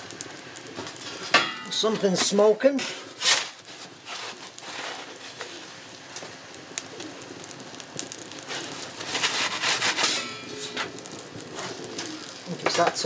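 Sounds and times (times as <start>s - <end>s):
pigeon cooing: 6.8s - 12.6s
metal peel scraping on stone: 9.0s - 12.1s.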